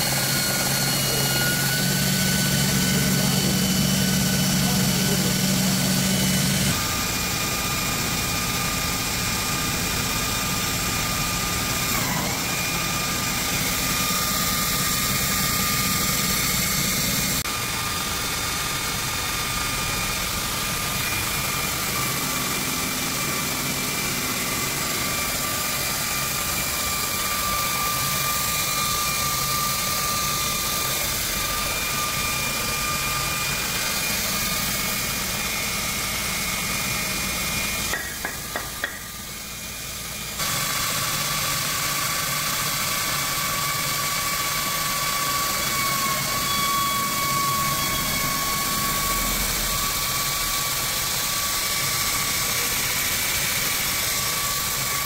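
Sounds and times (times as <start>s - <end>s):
belt grinder motor whine: 0.0s - 55.0s.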